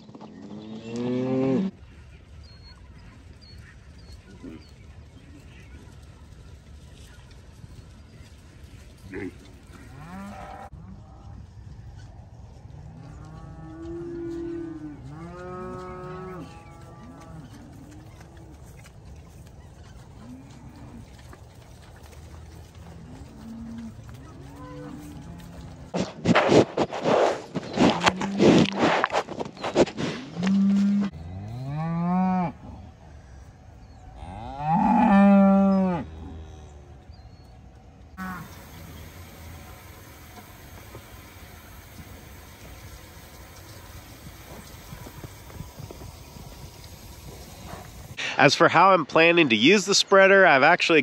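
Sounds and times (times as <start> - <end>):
cattle mooing: 9.1 - 10.7, 22.9 - 25.9, 38.2 - 45.3
cow nose scraping camera: 25.4 - 31.2.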